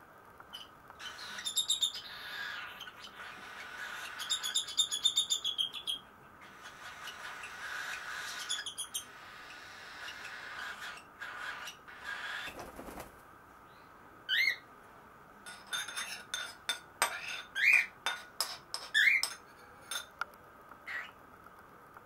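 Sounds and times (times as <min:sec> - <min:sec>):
baby birds chattering begging calls: 0:00.5 - 0:13.1, 0:14.3 - 0:14.7
spoon clinking ceramic bowl: 0:15.5 - 0:20.1.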